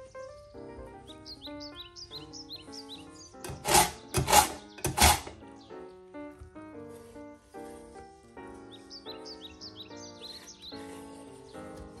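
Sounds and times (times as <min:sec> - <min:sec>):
background music: 0:00.0 - 0:12.0
knife rasping through sharpener: 0:03.5 - 0:05.4.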